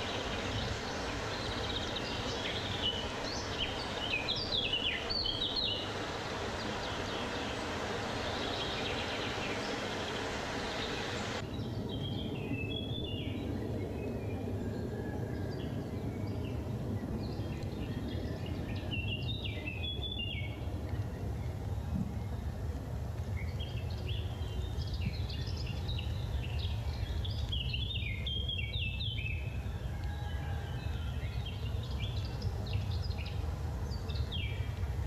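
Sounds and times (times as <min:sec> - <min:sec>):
small birds chirping: 0:00.0 - 0:14.6, 0:16.1 - 0:29.6
wind rushing in forest: 0:00.0 - 0:35.0.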